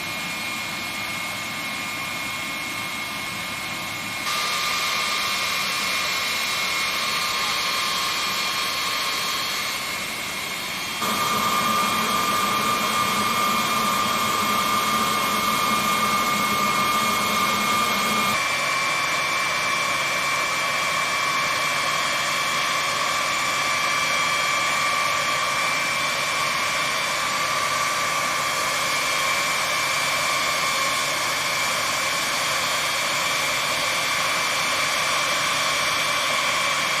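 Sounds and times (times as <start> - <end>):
jet engines whining and hissing: 0.0 - 37.0.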